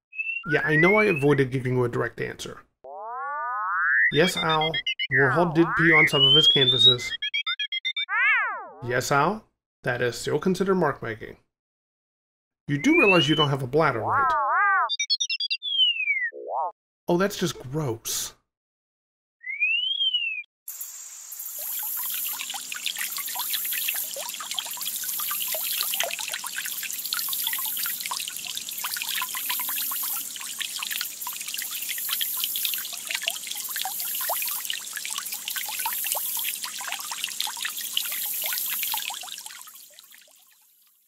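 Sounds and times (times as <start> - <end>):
rising and falling chirp effect: 0.1 - 1.2, 2.9 - 8.8, 12.8 - 16.7, 19.4 - 20.5
fountain water splashing into pond: 20.7 - 41.0.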